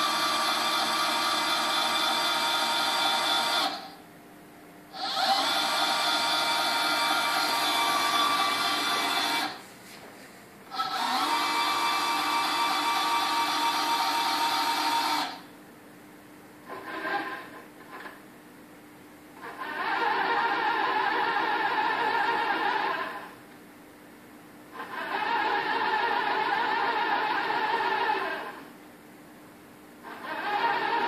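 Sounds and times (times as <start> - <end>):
machine axis drive whining: 0.0 - 4.0, 5.0 - 9.6, 10.7 - 15.5, 19.4 - 23.4, 24.8 - 28.6, 30.0 - 31.0.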